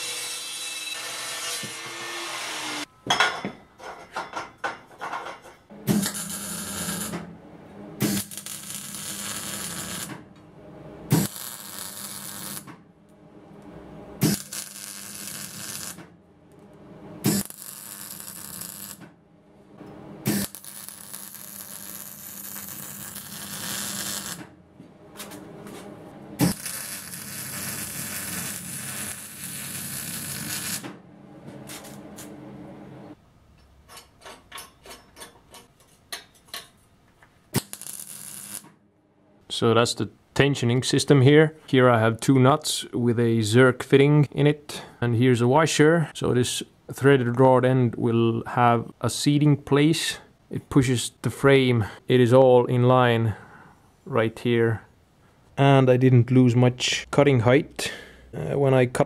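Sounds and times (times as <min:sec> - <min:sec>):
welder crackling hiss: 0:08.0 - 0:10.1, 0:11.1 - 0:12.7, 0:14.2 - 0:16.0, 0:17.2 - 0:19.0, 0:20.3 - 0:24.4, 0:26.4 - 0:30.8, 0:37.6 - 0:38.6.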